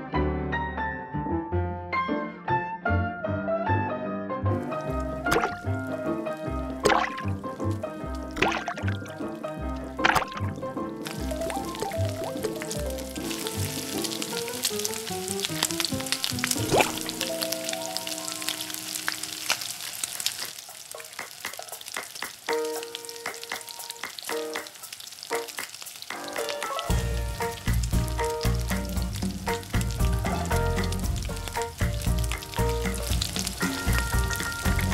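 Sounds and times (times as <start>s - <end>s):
dough frying in hot oil: 4.6s - 34.9s
background music with bass beat: 26.9s - 34.9s.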